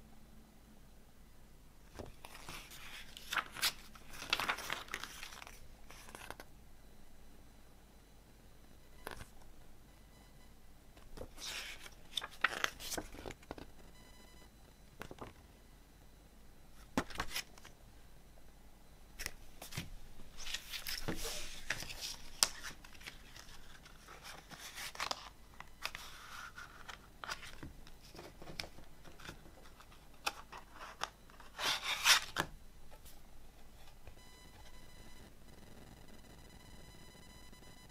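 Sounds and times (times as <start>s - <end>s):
paper booklet pages rustling: 2.0s - 6.5s, 11.1s - 13.7s, 16.8s - 17.7s, 19.2s - 33.2s.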